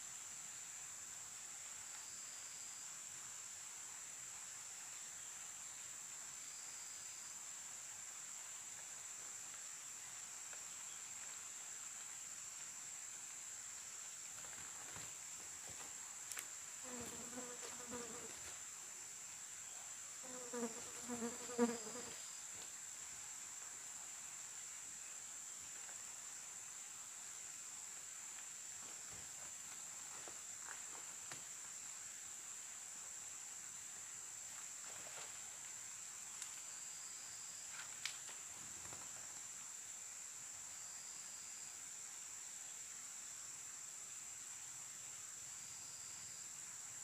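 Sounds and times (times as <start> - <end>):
insects droning: 0.0 - 47.0
flying insect buzzing past: 14.3 - 18.7, 20.2 - 22.6.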